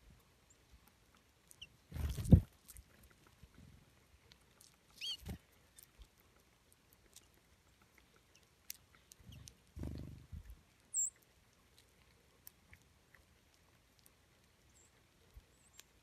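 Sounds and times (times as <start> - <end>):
birds pecking and cracking seeds: 0.0 - 16.0
wings fluttering: 1.9 - 2.5, 5.0 - 5.4
bird chirp: 5.0 - 5.9, 8.3 - 10.2, 10.9 - 11.2.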